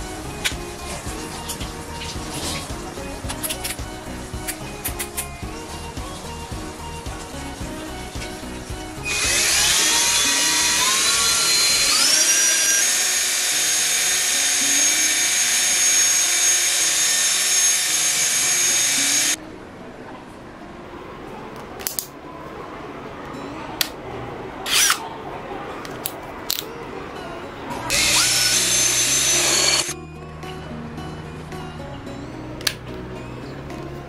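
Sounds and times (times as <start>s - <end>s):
cordless drill whine: 9.0s - 19.4s, 27.9s - 30.0s.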